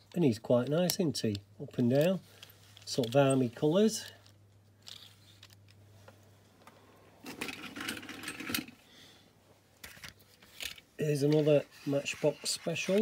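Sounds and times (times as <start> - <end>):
toy vehicles rattling and clinking: 7.3 - 8.8.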